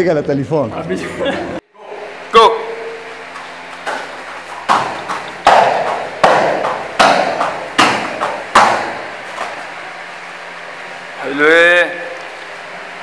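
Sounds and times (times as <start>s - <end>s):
heavy ringing thuds: 3.9s - 9.2s.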